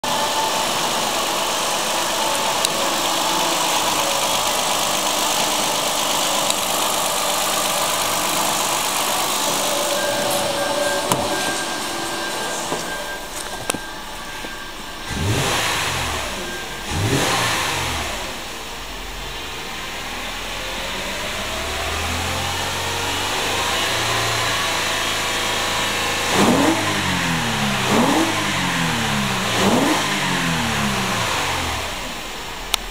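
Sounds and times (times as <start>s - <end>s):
car engine revving: 0.0s - 32.7s.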